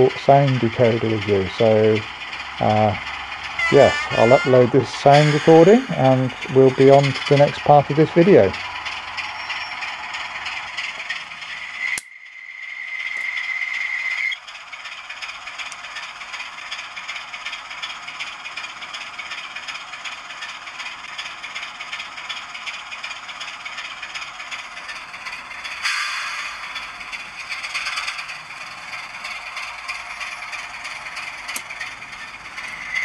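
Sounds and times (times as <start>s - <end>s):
model engine sound through tinny speaker: 0.0s - 33.0s
steady high note: 2.6s - 6.9s
click: 11.8s - 12.1s, 31.4s - 31.8s.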